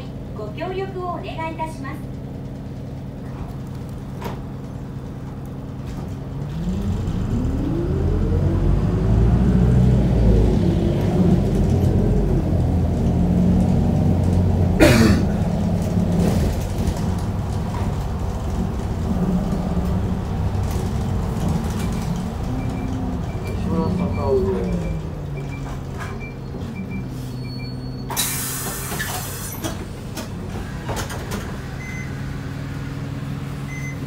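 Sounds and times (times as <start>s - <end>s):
bus diesel engine revving: 5.0s - 34.0s
short sharp hiss: 28.1s - 29.6s.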